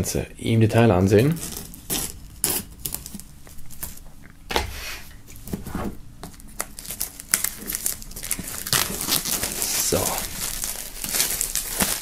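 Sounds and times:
plastic film peeling and crinkling: 0:01.2 - 0:04.1, 0:06.2 - 0:12.0.

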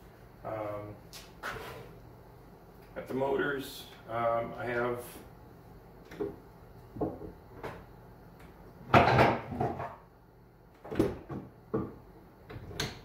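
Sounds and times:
wooden knocks and clunks: 0:07.0 - 0:07.8, 0:08.9 - 0:10.0, 0:10.8 - 0:12.9.

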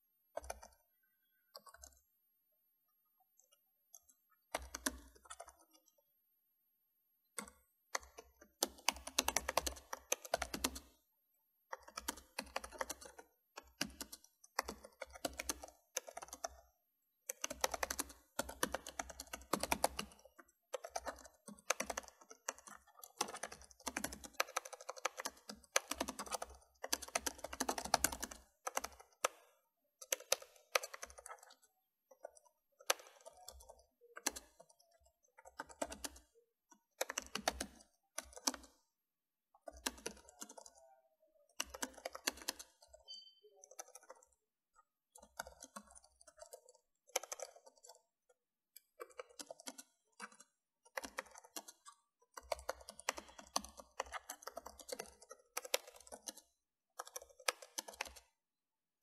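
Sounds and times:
typing on keyboard: 0:00.3 - 0:02.1, 0:03.4 - 0:06.0, 0:07.3 - 0:11.0, 0:11.7 - 0:39.0, 0:39.6 - 0:58.4.

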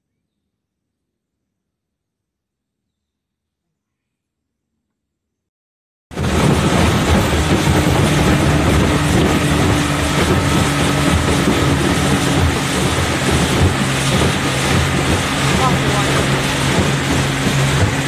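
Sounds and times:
motorboat engine running: 0:06.1 - 0:18.0
water rushing: 0:06.1 - 0:18.0
wind rushing: 0:06.1 - 0:18.0.

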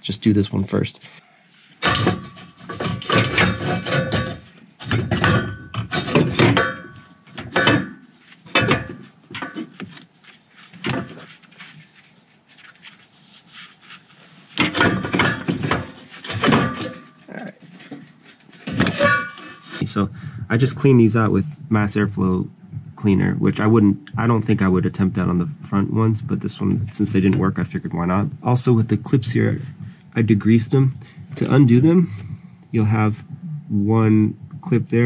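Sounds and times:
metal pipe knocking and scraping: 0:01.8 - 0:10.0, 0:14.6 - 0:19.8.

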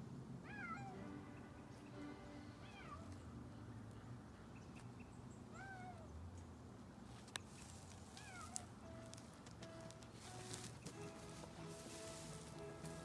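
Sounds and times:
cat meowing: 0:00.4 - 0:01.0, 0:02.6 - 0:03.1, 0:05.5 - 0:06.1, 0:08.2 - 0:08.7.

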